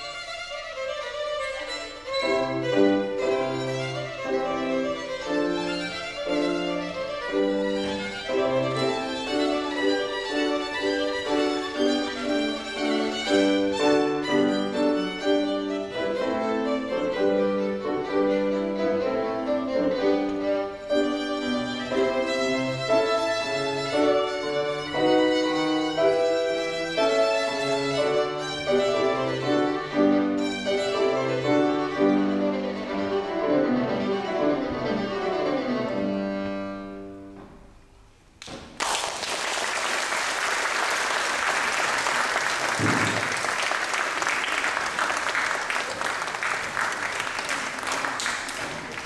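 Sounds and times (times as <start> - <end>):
violin with piano: 0.0 - 37.7
audience applause: 38.5 - 49.0.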